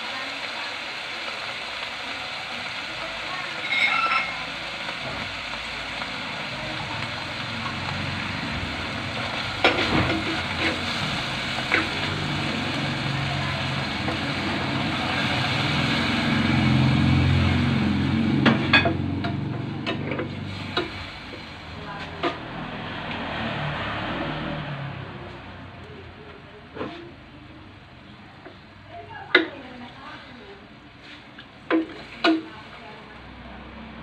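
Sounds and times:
mushrooms sizzling in a frying pan: 0:00.0 - 0:23.4, 0:27.1 - 0:33.9
wooden spatula scraping a pan: 0:03.6 - 0:04.6, 0:26.8 - 0:27.2.

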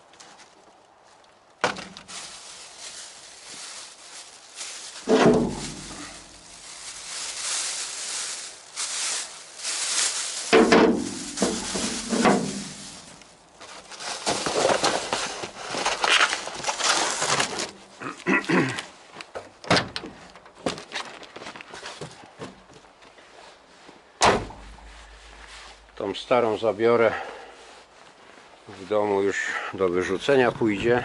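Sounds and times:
plastic bag crinkling: 0:01.7 - 0:18.1.

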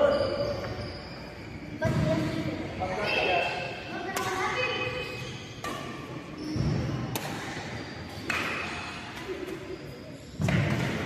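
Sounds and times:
racket hitting shuttlecock: 0:04.1 - 0:04.4, 0:05.6 - 0:06.1, 0:07.0 - 0:09.3.

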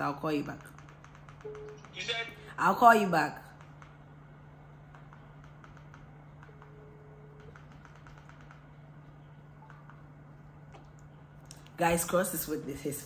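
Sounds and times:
fingers tapping a touchscreen: 0:00.5 - 0:02.1, 0:03.4 - 0:04.2, 0:04.8 - 0:11.0
low hum: 0:00.8 - 0:13.0.

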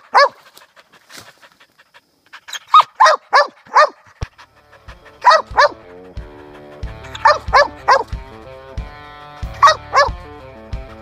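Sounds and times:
dog barking: 0:00.0 - 0:00.5, 0:02.5 - 0:04.3, 0:05.1 - 0:05.9, 0:07.0 - 0:08.2, 0:09.5 - 0:10.2.

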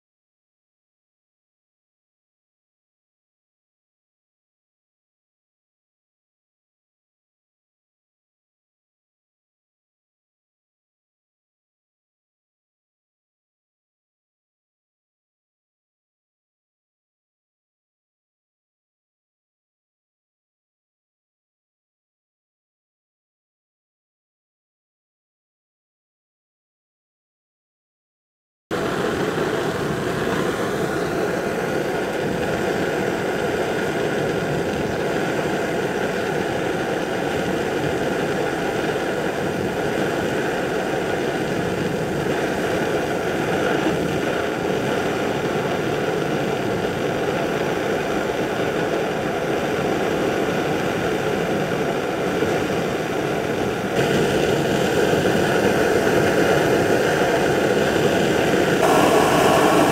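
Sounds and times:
pressure stove roaring hiss: 0:28.8 - 0:43.5, 0:54.0 - 0:59.9.

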